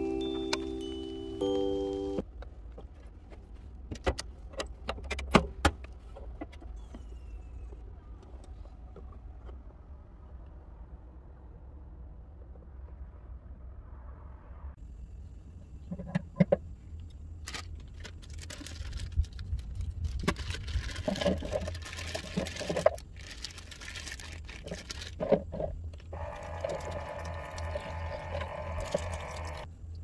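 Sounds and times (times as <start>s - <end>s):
low steady hum: 0.0s - 30.0s
plastic bag rustling: 17.5s - 27.0s
faucet water running into sink: 26.2s - 29.7s.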